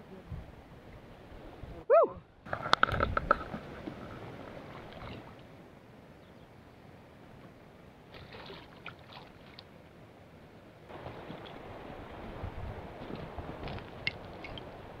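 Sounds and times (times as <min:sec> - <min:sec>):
shallow river flowing: 0:00.0 - 0:15.0
water splashes and sloshes: 0:02.5 - 0:06.2, 0:06.9 - 0:15.0.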